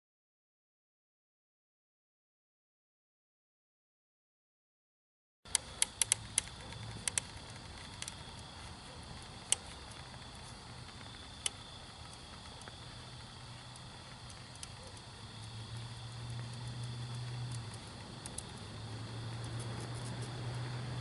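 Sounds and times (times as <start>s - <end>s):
molten metal crackling pops: 5.5s - 21.0s
steady low hum: 5.5s - 21.0s.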